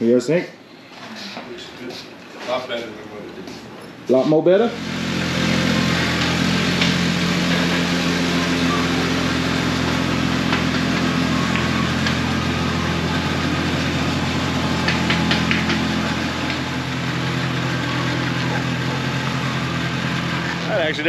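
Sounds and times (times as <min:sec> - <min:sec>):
engine idling: 0:04.6 - 0:21.0.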